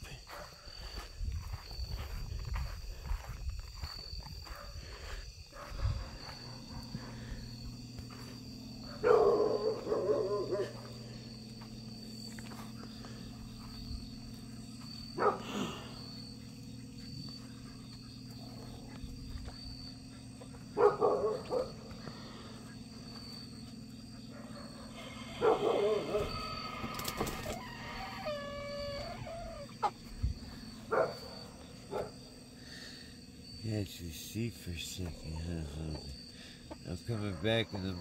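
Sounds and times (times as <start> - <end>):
steady low hum: 0.0 - 38.0
loud animal calls: 24.8 - 30.1.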